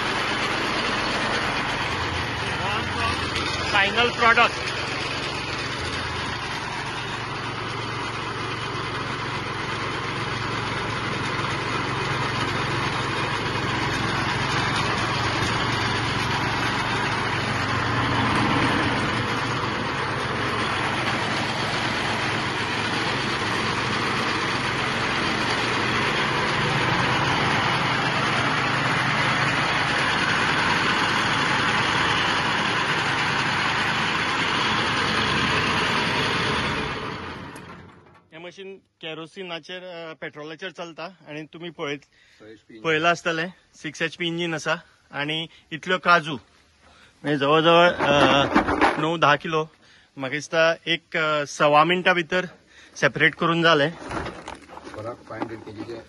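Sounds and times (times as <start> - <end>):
machine engine drone: 0.0 - 38.2.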